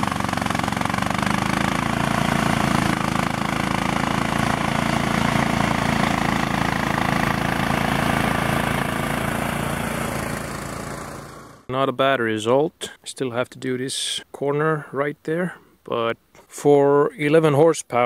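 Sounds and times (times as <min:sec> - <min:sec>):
atv engine running: 0:00.0 - 0:11.7
mower cutting tall grass: 0:00.0 - 0:11.7.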